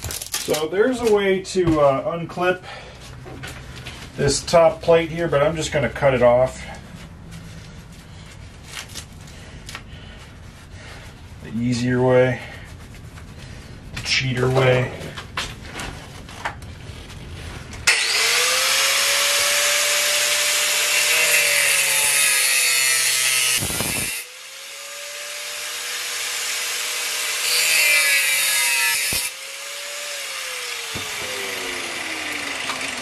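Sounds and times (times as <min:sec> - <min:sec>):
angle grinder motor whining: 0:17.9 - 0:33.0
grinder disc cutting steel: 0:17.9 - 0:33.0.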